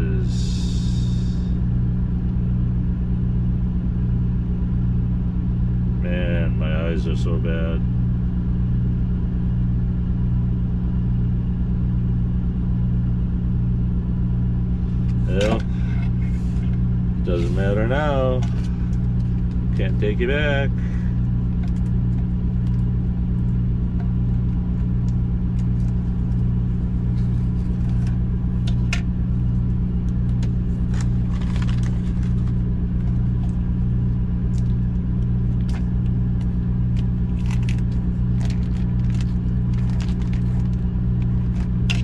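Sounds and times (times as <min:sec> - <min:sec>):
diesel engine idling: 0:00.0 - 0:42.0
plastic package crinkling: 0:30.0 - 0:33.8, 0:34.5 - 0:42.0.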